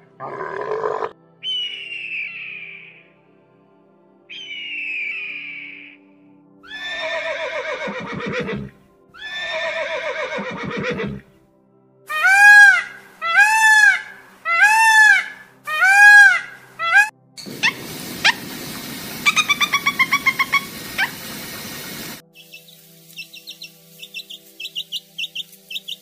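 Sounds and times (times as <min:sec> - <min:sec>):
high bird call: 0:04.3 - 0:06.0, 0:12.1 - 0:18.5, 0:19.2 - 0:26.0
horse whinnying: 0:06.7 - 0:11.3
peacock calling: 0:12.1 - 0:26.0.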